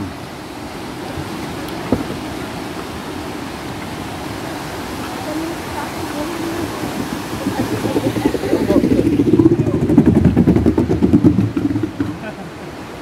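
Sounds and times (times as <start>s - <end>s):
rushing river: 0.0s - 13.0s
skateboard rolling on wooden planks: 6.1s - 12.6s.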